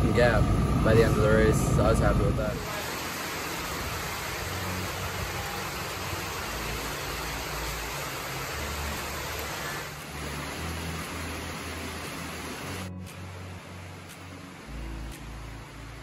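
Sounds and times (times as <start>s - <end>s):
wind rumble on microphone: 0.0s - 2.7s
heavy rain falling: 0.0s - 16.0s.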